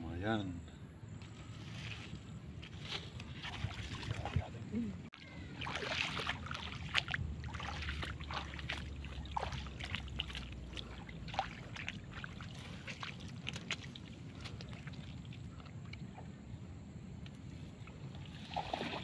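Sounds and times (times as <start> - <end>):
low steady background noise: 0.0 - 19.0
water splashing and dripping: 3.3 - 16.3, 17.8 - 19.0.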